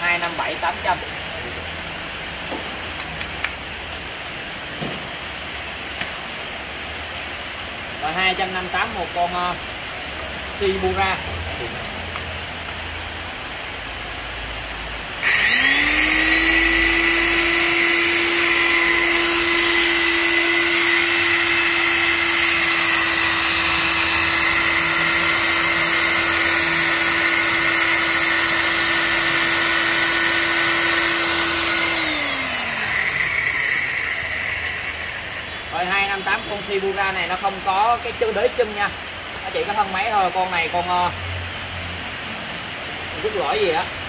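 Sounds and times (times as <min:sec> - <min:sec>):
power tool motor whining: 0:15.2 - 0:36.4.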